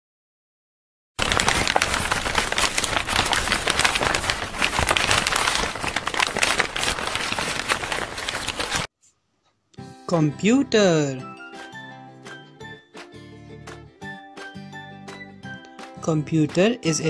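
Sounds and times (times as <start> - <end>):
dense crackling noise: 1.2 - 8.9.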